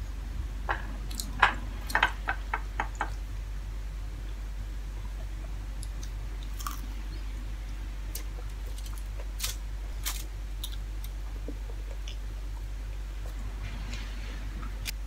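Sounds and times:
steady low hum: 0.0 - 15.0
person chewing: 5.8 - 7.0
aluminium foil crinkling: 8.2 - 11.2.

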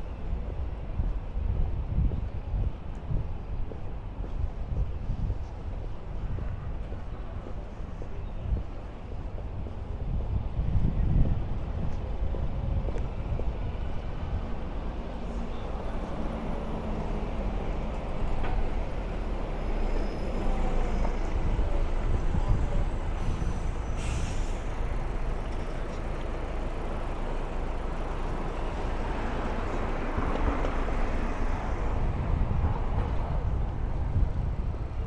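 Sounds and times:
vehicles passing: 1.9 - 35.0
brief hiss: 23.2 - 24.7.

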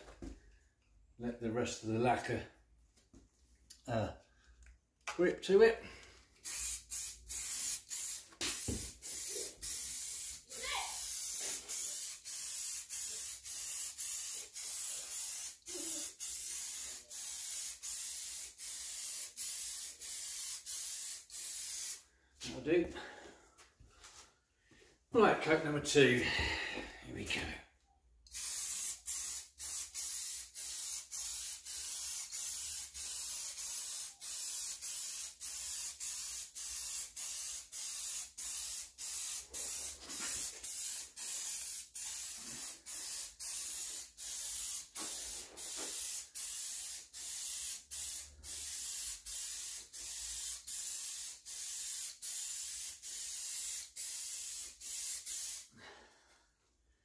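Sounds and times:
spray gun hissing bursts: 6.4 - 22.0, 28.4 - 55.7.

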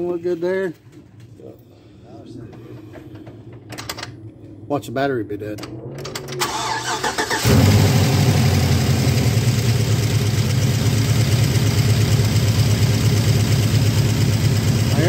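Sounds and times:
car engine starting and idling: 5.4 - 15.0.

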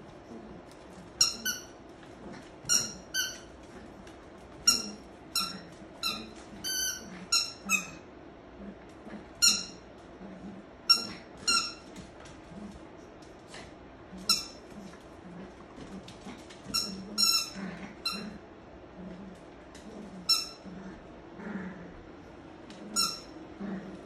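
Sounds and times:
squeaky toy squeaks: 2.7 - 3.5, 4.7 - 8.0, 9.4 - 9.8, 22.9 - 23.3.

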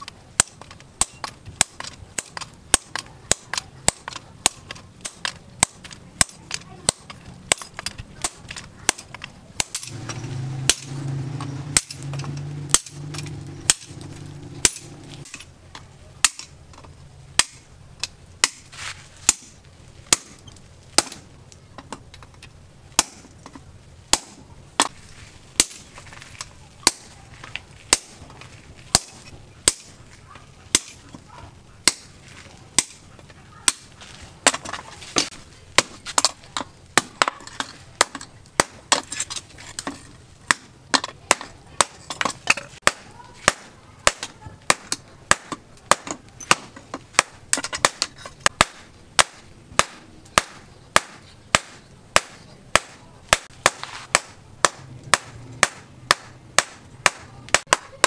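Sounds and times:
hammer striking steel on anvil: 0.4 - 11.1, 14.6 - 15.4.

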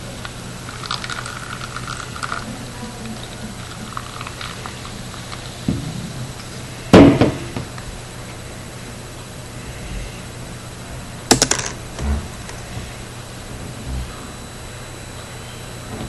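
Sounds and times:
faint fizz: 0.0 - 6.8
cola pouring into plastic cup: 0.2 - 5.7.

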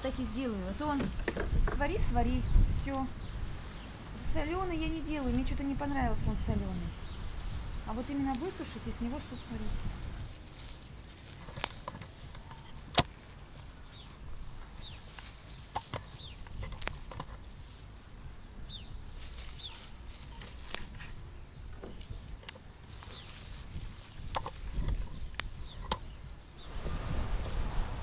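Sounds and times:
leaf stems snapping: 6.5 - 18.0, 19.1 - 26.2
bird chirps: 24.8 - 26.7.

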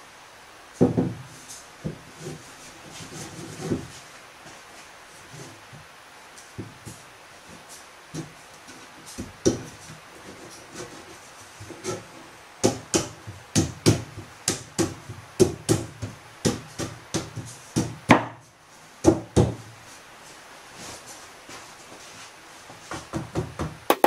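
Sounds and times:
wooden boards knocking: 0.8 - 1.2, 22.9 - 24.0.

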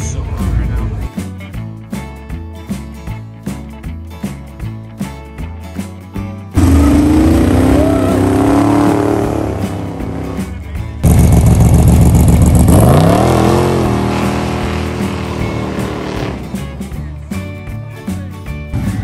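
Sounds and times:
hot rod burnout engine revving: 6.6 - 16.7
muscle car revving: 6.6 - 17.0.

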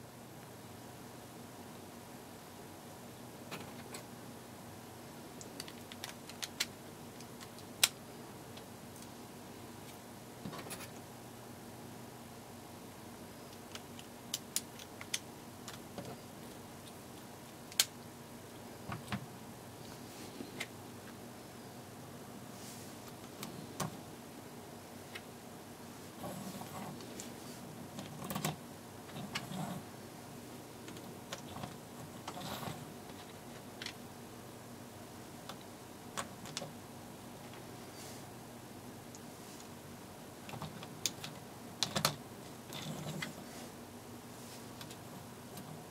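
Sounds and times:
plastic parts clicking together: 5.4 - 8.0.

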